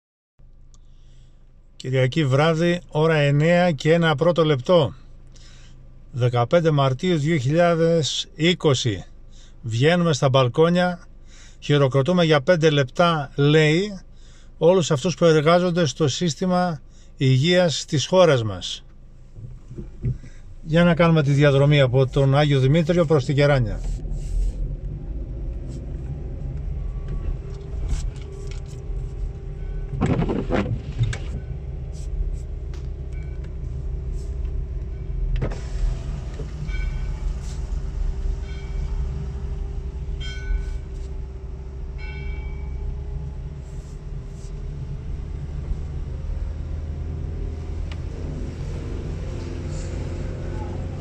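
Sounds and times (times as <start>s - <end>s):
car engine and tyre rumble: 0.4s - 51.0s.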